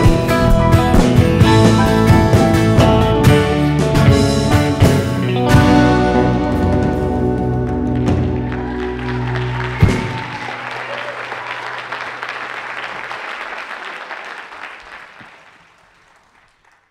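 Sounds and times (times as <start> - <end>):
live band playing chord: 0.0 - 10.6
audience applause: 7.6 - 16.9.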